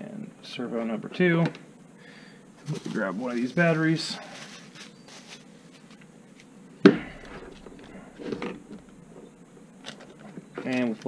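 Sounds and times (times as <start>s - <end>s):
bubble-wrap bag crinkling: 4.2s - 6.0s.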